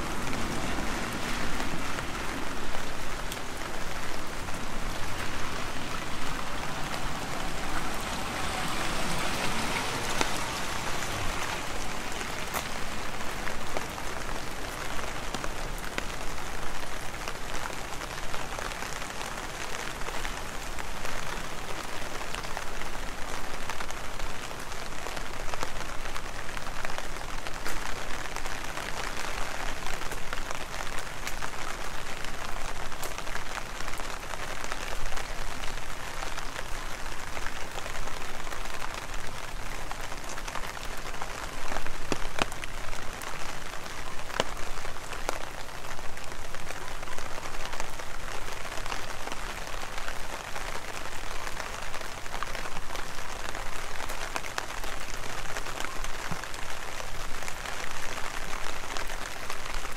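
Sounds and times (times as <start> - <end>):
heavy rain: 0.0 - 59.9
sharp raindrop impacts: 0.0 - 59.9.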